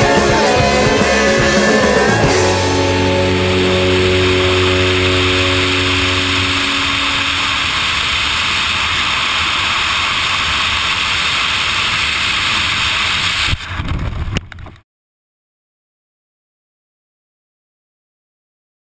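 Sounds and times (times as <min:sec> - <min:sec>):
freefall wind on microphone: 0:03.3 - 0:14.8
crackles: 0:03.4 - 0:14.8.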